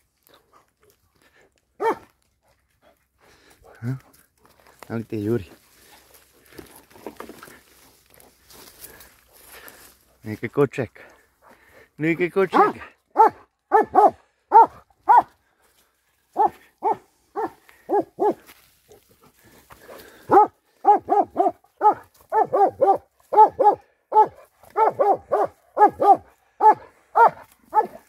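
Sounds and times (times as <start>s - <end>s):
dog barking sharply: 1.8s - 2.1s, 12.5s - 15.3s, 16.4s - 18.4s, 20.3s - 28.0s.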